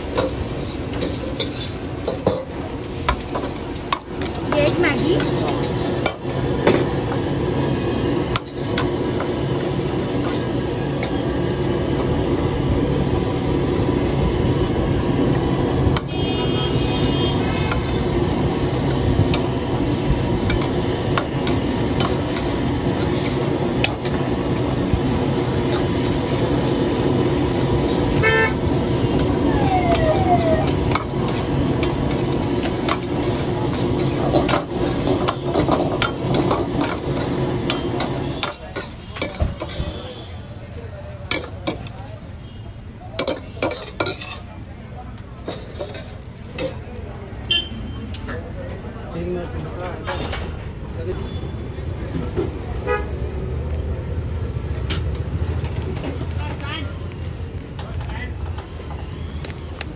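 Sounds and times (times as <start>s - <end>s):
metal ladle scraping a pan: 0.0s - 6.9s, 8.3s - 11.2s, 17.0s - 40.3s, 41.3s - 42.5s, 43.1s - 44.6s, 45.4s - 46.8s
vehicle horns tooting: 16.0s - 18.2s, 28.0s - 28.7s, 37.7s - 40.5s, 47.5s - 48.1s, 52.8s - 53.2s
steady rushing noise: 16.8s - 40.0s.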